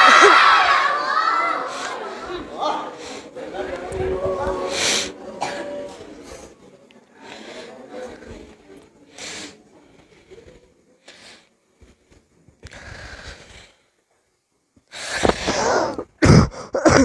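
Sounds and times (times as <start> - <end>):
person coughing: 5.4 - 5.8, 15.5 - 17.0
person breathing and sniffing: 12.6 - 13.8.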